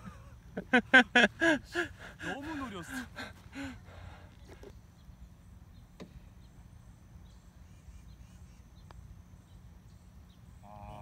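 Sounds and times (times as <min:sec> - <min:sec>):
faint high bird chirps: 0:04.7 - 0:11.0.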